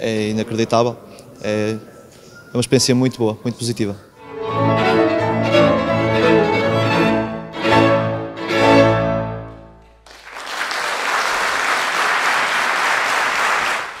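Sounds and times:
classical string music: 4.2 - 9.8
audience applause: 10.0 - 14.0.

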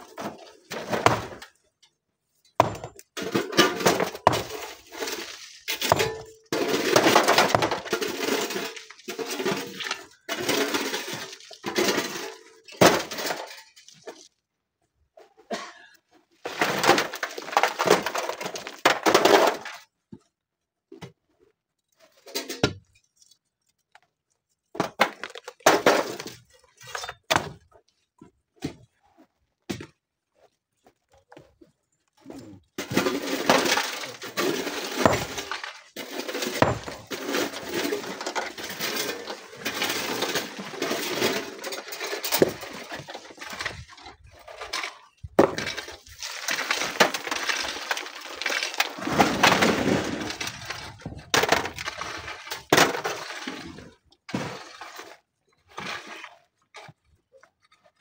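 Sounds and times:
rock chunks clattering: 2.6 - 14.3, 32.8 - 57.2.

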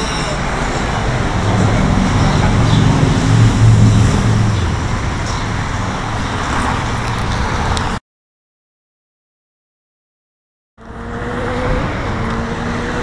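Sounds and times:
road traffic rumble: 0.0 - 8.0, 10.8 - 13.0.

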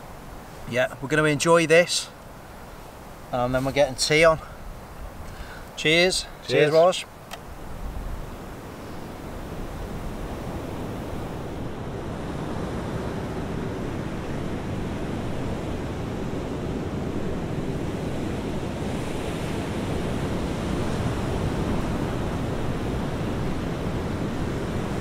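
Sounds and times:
sea surf washing on shore: 0.0 - 25.0
wind rumbling on microphone: 7.5 - 25.0.

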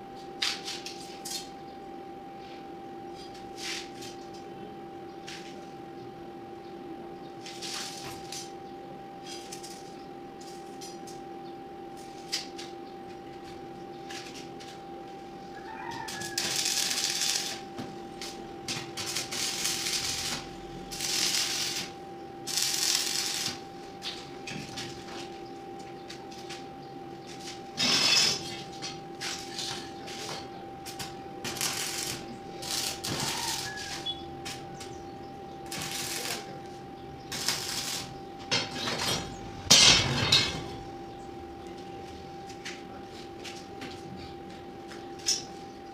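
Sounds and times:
steady hum: 0.0 - 45.9
crackling welding arc: 7.4 - 8.5, 9.2 - 11.2, 15.6 - 25.1, 27.8 - 35.0, 35.6 - 40.9.

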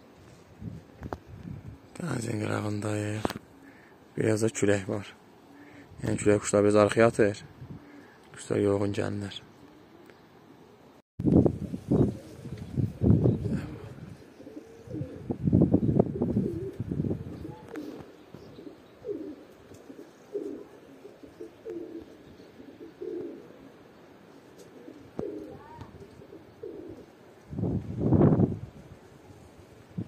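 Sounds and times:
wind gusts buffeting microphone: 0.5 - 2.2, 7.4 - 7.9, 11.2 - 14.2, 14.8 - 18.6, 27.4 - 30.0
pigeons cooing: 0.9 - 6.0, 7.6 - 8.2, 9.5 - 10.8, 11.7 - 27.4.

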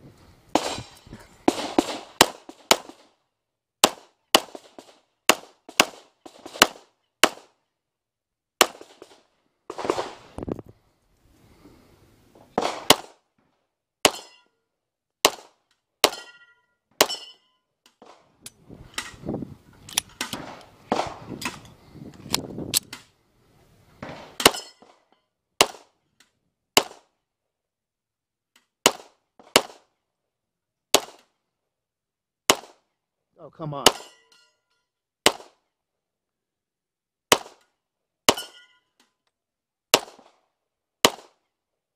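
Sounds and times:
pistol shots: 1.5 - 3.0, 3.8 - 7.6, 12.6 - 13.2, 15.2 - 16.4, 28.8 - 29.9, 30.9 - 31.2, 32.5 - 32.8, 35.2 - 35.6, 37.3 - 37.6, 39.9 - 40.4, 41.0 - 41.4
steel targets ringing: 16.1 - 17.5.

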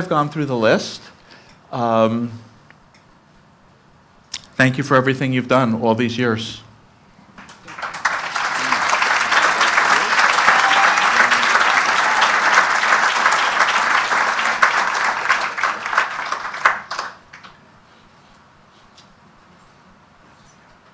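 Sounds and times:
audience applauding: 7.4 - 17.6.

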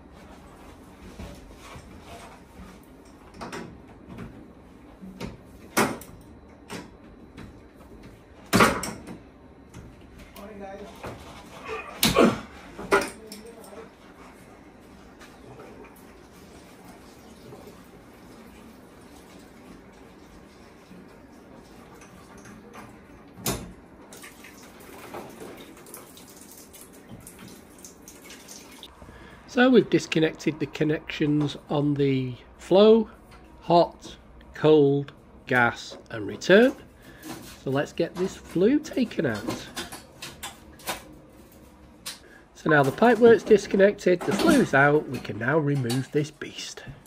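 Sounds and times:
water trickling and dripping: 24.1 - 28.9.

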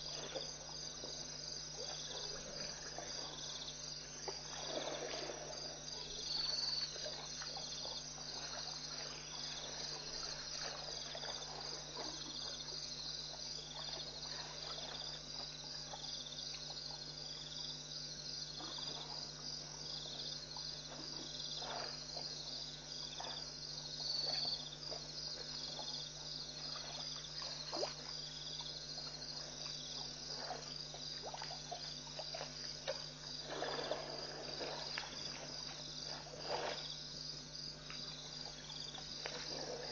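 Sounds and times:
elephants splashing while drinking: 0.0 - 12.8, 26.6 - 37.2, 38.2 - 39.9
crickets and insects trilling: 0.0 - 39.9
steady low hum: 0.0 - 39.9.

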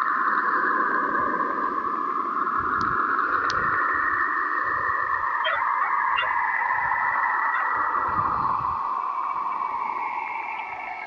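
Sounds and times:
steady hiss with whistling band: 0.0 - 11.0
faint ticks: 2.8 - 3.6
short warbling chirps: 5.4 - 6.4.

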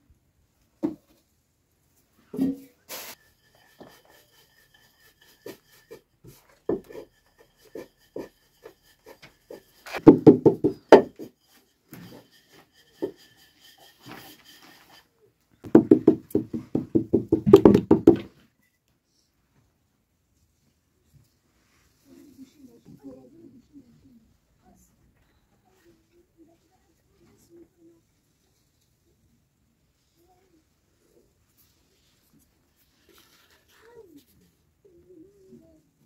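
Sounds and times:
rolling pin knocking on metal tray: 9.9 - 11.3, 15.7 - 18.2.

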